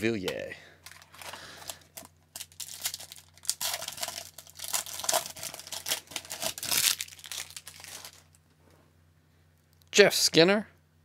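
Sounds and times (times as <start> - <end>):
foil wrapper tearing and crinkling: 0.9 - 8.4.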